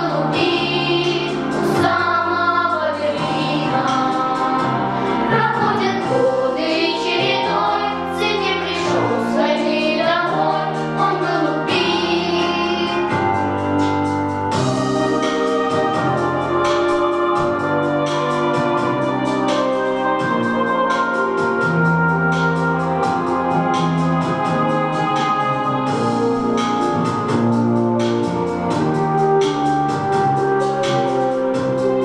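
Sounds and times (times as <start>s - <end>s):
girls singing together: 0.0s - 13.2s
instrumental backing track: 0.0s - 32.0s.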